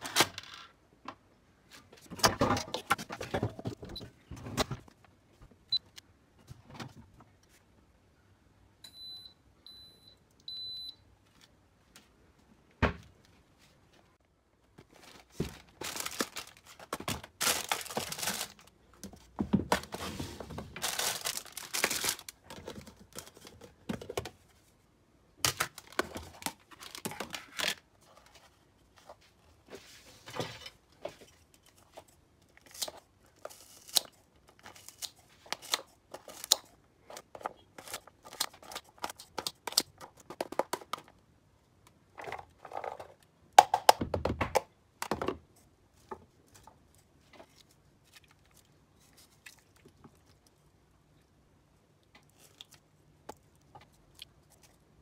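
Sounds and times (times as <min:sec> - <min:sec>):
plastic packaging crinkling: 0:14.9 - 0:18.8, 0:20.7 - 0:23.6
plastic boxes knocking on wood: 0:43.6 - 0:45.4.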